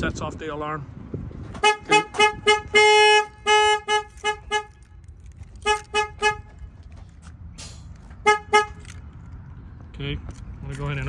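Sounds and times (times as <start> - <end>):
truck horn toots: 1.6 - 5.0, 5.6 - 6.7, 8.2 - 9.0
brief hiss: 7.6 - 7.9.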